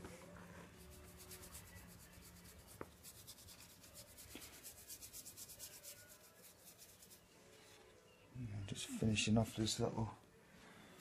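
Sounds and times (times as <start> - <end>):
paintbrush scratching on wood: 0.7 - 7.3.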